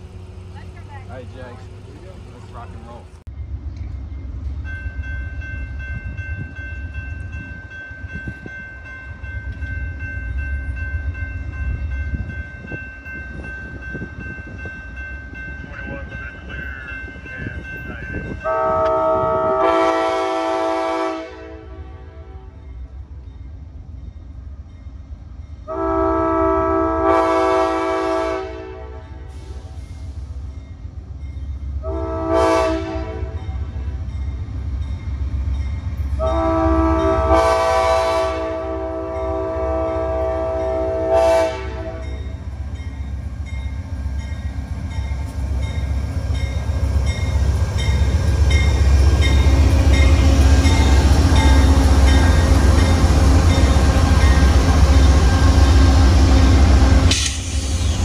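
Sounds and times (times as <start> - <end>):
train engine and wheels rumbling: 0.0 - 58.0
locomotive horn blasts: 18.4 - 22.6, 25.7 - 29.3, 31.8 - 33.4, 36.2 - 42.2.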